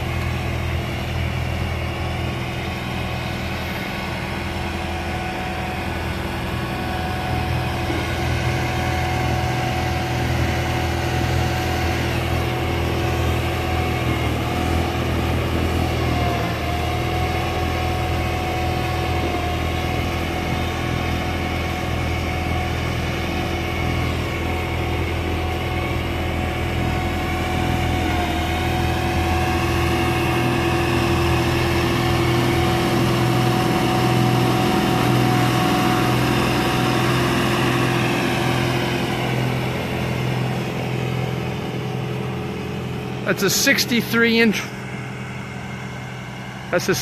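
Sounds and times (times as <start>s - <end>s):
tractor diesel engine running: 0.0s - 47.0s.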